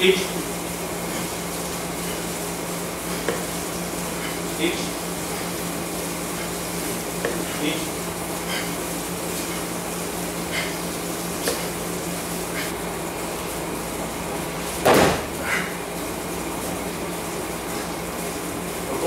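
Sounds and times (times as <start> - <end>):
steady background hum: 0.0 - 19.0
body thudding on mat: 14.8 - 15.4.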